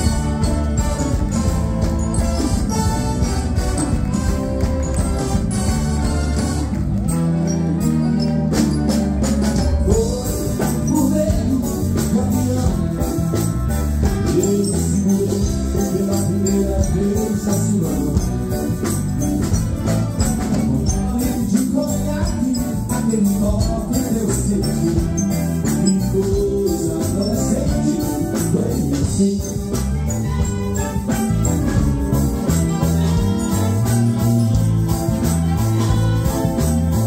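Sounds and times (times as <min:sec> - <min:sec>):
wind band playing: 0:00.0 - 0:11.4, 0:12.5 - 0:20.8, 0:27.7 - 0:37.0
man singing: 0:09.6 - 0:19.6, 0:20.2 - 0:37.0.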